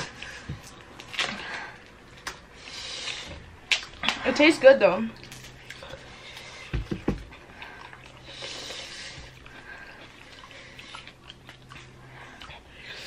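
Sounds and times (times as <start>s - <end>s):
quiet chewing: 5.2s - 13.0s.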